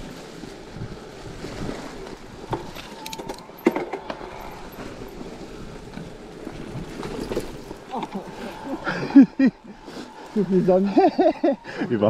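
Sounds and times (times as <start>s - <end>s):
bike rattling: 0.0s - 11.7s
tyres rustling over dry leaves: 0.0s - 11.8s.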